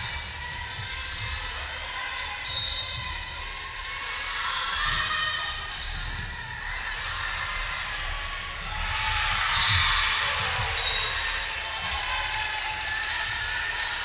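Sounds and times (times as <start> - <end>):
crowd shouting and cheering: 0.0 - 14.0
players and spectators voices: 0.0 - 14.0.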